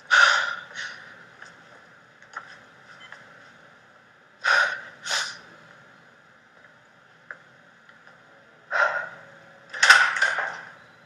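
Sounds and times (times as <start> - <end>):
man breathing raggedly: 0.0 - 1.3, 4.4 - 5.6
faint background hum: 0.0 - 11.0.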